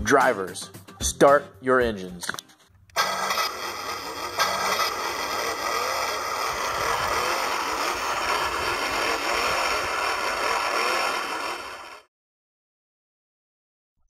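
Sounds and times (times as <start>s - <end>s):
motor engines revving: 2.9s - 12.1s.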